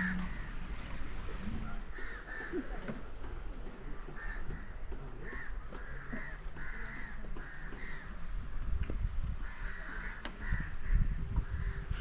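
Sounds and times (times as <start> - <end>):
crows cawing: 4.2 - 8.1, 9.4 - 11.9.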